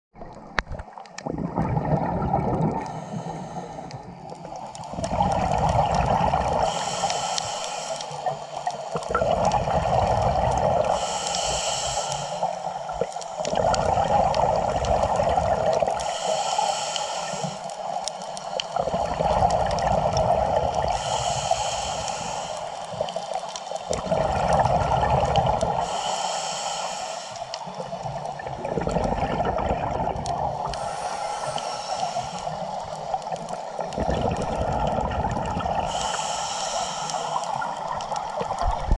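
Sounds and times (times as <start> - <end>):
exhaled bubbles rushing: 0.2 - 6.8, 8.9 - 10.9, 12.9 - 16.0, 18.8 - 20.9, 23.9 - 25.8, 27.8 - 31.5, 32.5 - 36.0
regulator inhale hiss: 2.8 - 4.3, 6.6 - 9.0, 10.8 - 13.6, 15.9 - 19.1, 20.2 - 23.8, 25.6 - 28.0, 30.6 - 33.8, 35.6 - 38.0.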